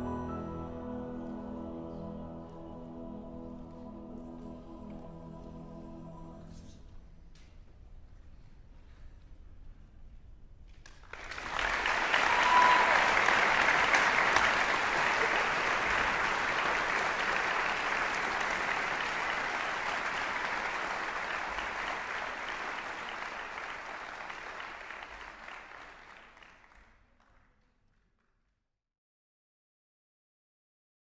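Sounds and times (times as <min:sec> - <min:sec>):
audience applauding: 0:10.8 - 0:27.4.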